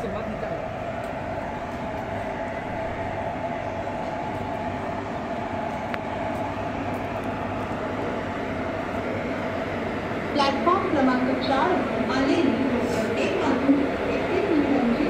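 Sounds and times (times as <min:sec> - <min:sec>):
electric locomotives passing: 0:00.0 - 0:15.0.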